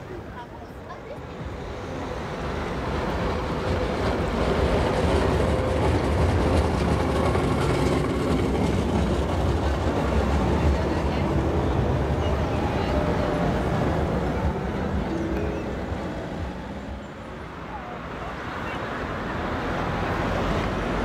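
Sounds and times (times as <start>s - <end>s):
tram passing on rails: 0.0s - 21.0s.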